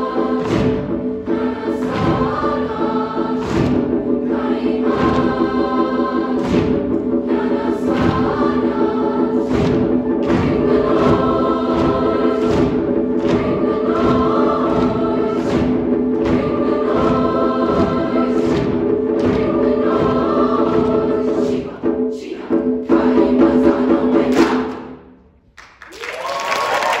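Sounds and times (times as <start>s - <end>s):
choir singing: 0.0s - 25.0s
percussive hits: 0.0s - 25.2s
audience cheering: 25.8s - 27.0s.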